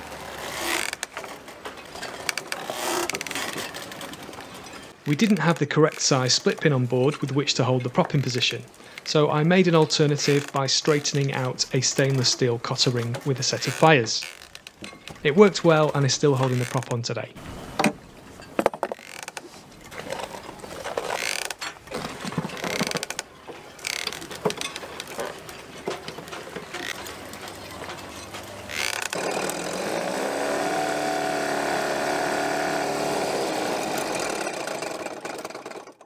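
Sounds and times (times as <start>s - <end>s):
starter cord pulls: 0.4s - 17.0s, 18.6s - 36.0s
outboard motor handling knocks: 17.7s - 19.1s
outboard motor running: 27.0s - 36.0s.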